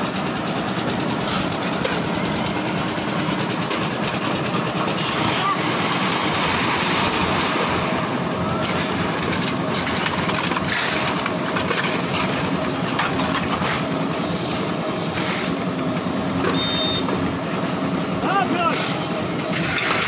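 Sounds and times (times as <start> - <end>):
concrete mixer engine running: 0.0 - 20.0
shovels scraping wet concrete: 8.7 - 12.5, 18.7 - 20.0.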